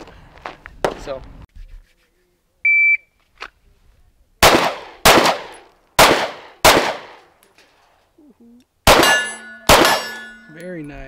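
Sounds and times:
pistol shots: 0:04.4 - 0:07.3, 0:08.8 - 0:10.4.

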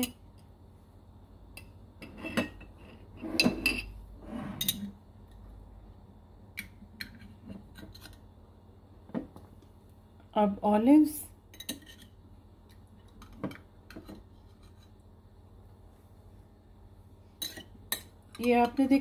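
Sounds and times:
utensils clinking on countertop: 0:02.0 - 0:03.9, 0:11.5 - 0:12.2, 0:17.4 - 0:19.0.

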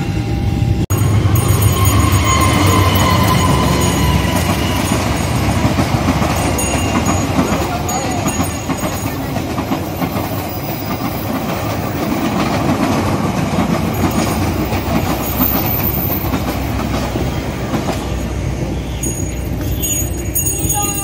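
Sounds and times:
train rumble: 0:00.0 - 0:21.0
train wheels clattering over rail joints: 0:01.4 - 0:20.8.

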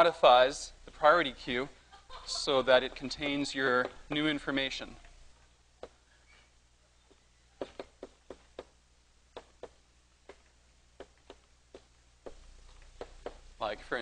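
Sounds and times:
low steady hum: 0:00.0 - 0:14.0
chalk tapping on blackboard: 0:07.1 - 0:08.8, 0:11.0 - 0:13.4.

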